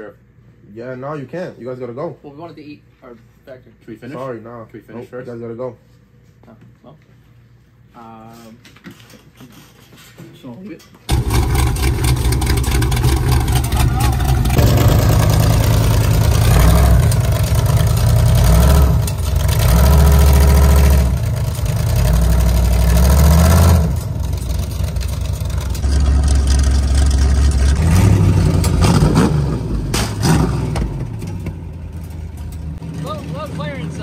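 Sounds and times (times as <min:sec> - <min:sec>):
car engine revving loudly: 0:11.1 - 0:31.1.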